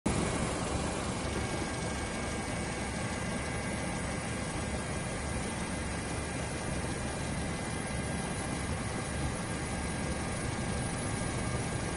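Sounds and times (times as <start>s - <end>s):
faint high whine: 0.1s - 11.9s
helicopter engine and rotor drone: 0.1s - 11.9s.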